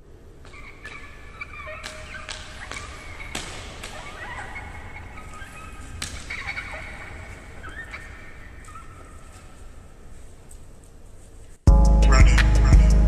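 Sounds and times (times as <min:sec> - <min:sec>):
sharp cracks: 0:00.0 - 0:11.0
wavering drawn-out pitched calls: 0:00.2 - 0:10.6
steady low rumble: 0:11.7 - 0:13.0.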